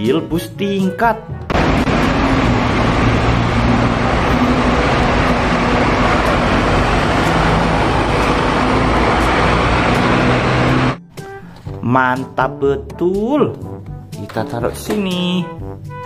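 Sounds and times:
street traffic: 1.3s - 11.6s
bus diesel engine running: 1.5s - 11.0s.

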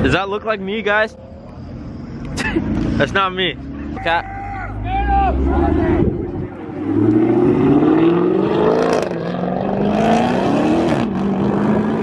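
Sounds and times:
car engine accelerating: 4.7s - 12.0s.

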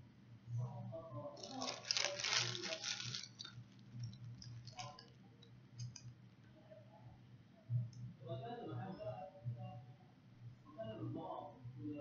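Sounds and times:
packet crackling: 1.4s - 5.2s, 5.8s - 6.0s.

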